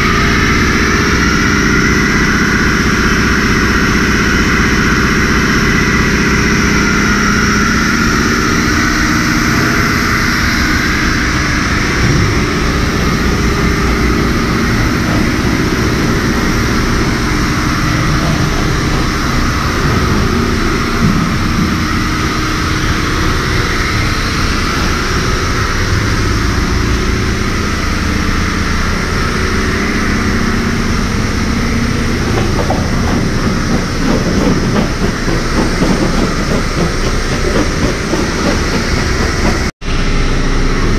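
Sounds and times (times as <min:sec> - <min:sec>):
low mechanical drone: 0:00.0 - 0:40.9
high-pressure water jet hissing: 0:32.2 - 0:39.7.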